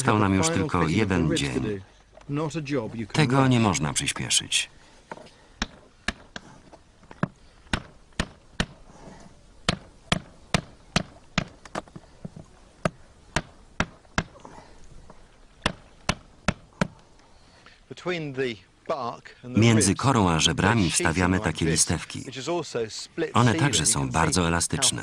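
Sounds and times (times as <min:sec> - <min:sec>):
sharp wooden knocks: 0:05.1 - 0:08.8, 0:09.6 - 0:14.4, 0:15.6 - 0:17.0.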